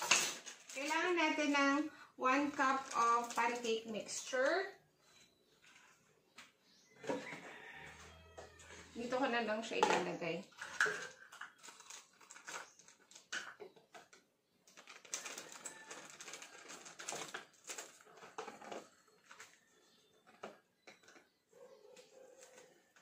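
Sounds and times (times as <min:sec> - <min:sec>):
plastic bag crinkling: 0:00.0 - 0:01.6, 0:02.4 - 0:04.2, 0:10.6 - 0:13.5, 0:14.1 - 0:20.2.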